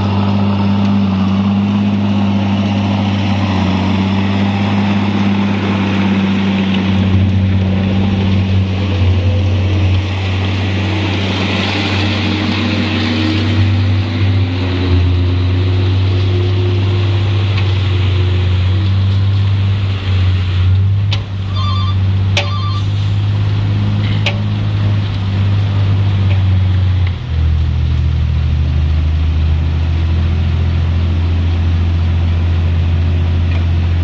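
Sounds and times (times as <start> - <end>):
truck engine droning: 0.0 - 34.0
rapid beeping: 21.5 - 22.9.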